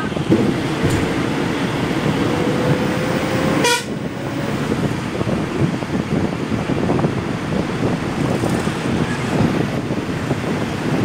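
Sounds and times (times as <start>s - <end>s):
wind and road rumble: 0.0s - 11.0s
short horn beep: 3.6s - 3.9s.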